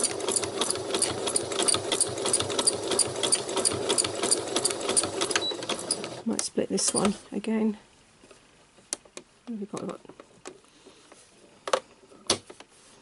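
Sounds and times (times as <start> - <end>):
sewing machine motor hum: 0.0 - 6.2.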